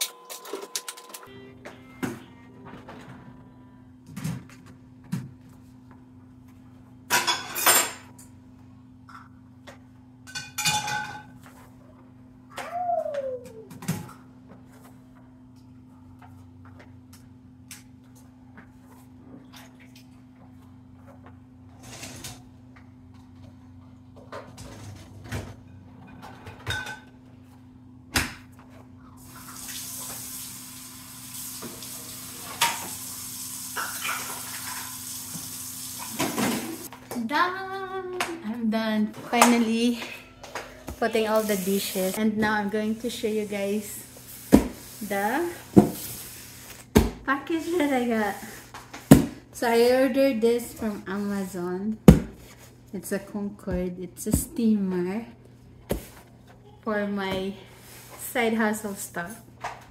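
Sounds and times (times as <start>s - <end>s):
dishwasher racks and dishes clattering: 7.1s - 8.2s, 10.2s - 11.6s, 24.2s - 27.2s, 33.7s - 35.4s, 36.0s - 36.9s
dishes and cutlery clinking: 10.3s - 11.4s.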